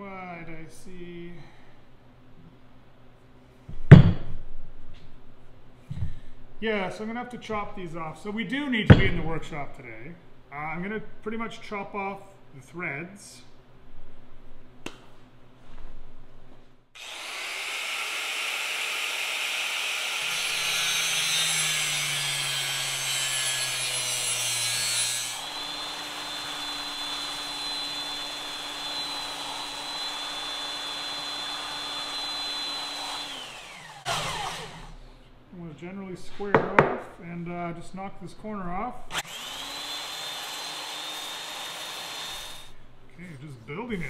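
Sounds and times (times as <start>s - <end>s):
handling knocks: 3.7s - 4.4s, 8.9s - 9.3s
angle grinder cutting steel pipe: 17.0s - 34.9s, 39.1s - 42.7s
belt sander whining: 17.0s - 35.0s, 39.1s - 42.7s.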